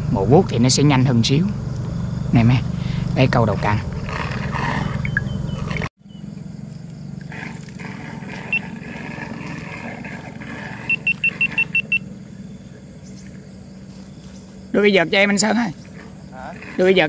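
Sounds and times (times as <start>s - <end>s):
low motor hum: 0.0s - 17.0s
short high beeps: 10.9s - 12.0s.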